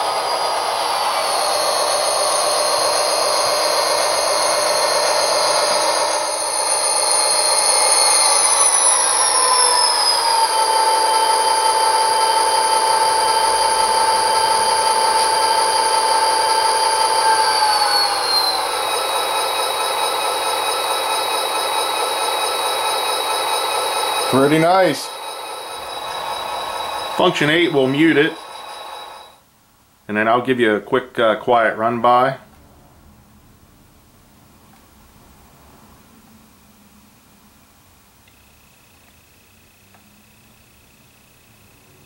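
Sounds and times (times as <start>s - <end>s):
model diesel engine sound: 0.0s - 29.4s
turbocharger whine: 0.0s - 29.5s, 36.2s - 42.0s.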